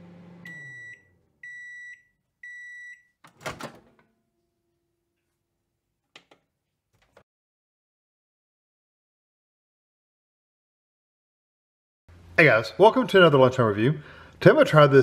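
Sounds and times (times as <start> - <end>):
microwave oven humming: 0.0 - 1.2
microwave beeps: 0.1 - 3.2.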